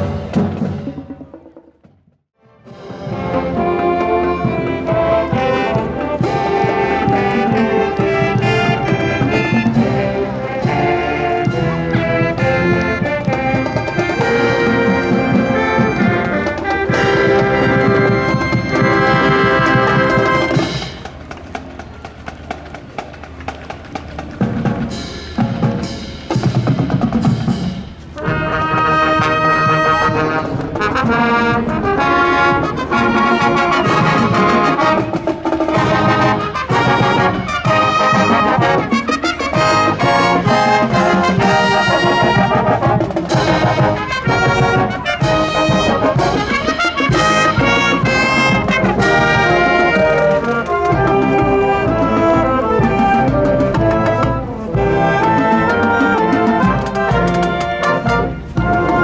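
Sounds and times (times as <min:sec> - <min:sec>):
trumpets and trombones: 0:00.0 - 0:01.5, 0:02.4 - 0:59.0
drum strikes: 0:00.0 - 0:15.3
marching band playing: 0:00.0 - 0:59.0.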